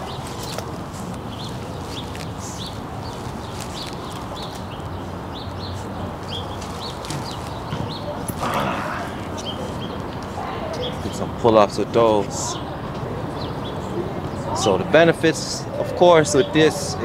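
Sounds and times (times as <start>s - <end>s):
small birds chirping: 0.0s - 12.7s.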